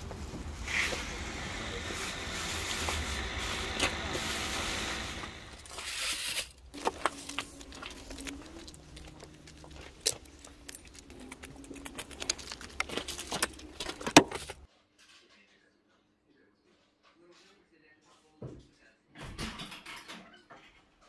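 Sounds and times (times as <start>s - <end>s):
plastic rustling: 0.0s - 14.7s
computer parts clicking and knocking: 6.7s - 14.6s.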